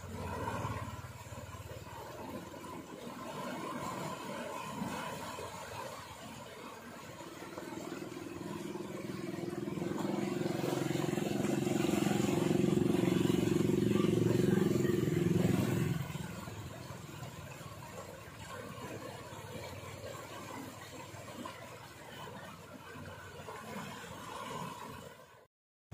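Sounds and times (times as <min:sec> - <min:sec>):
small engine running: 0:00.0 - 0:25.1
floodwater rushing through culvert: 0:00.0 - 0:25.5.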